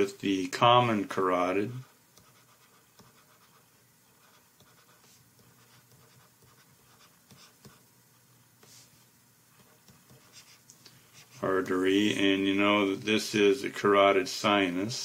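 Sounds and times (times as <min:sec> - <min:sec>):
stylus scratching on tablet: 0:01.7 - 0:11.8.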